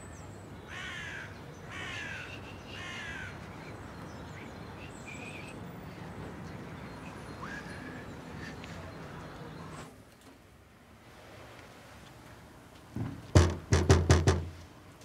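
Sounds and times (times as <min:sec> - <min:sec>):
bird cawing: 0:00.7 - 0:03.6.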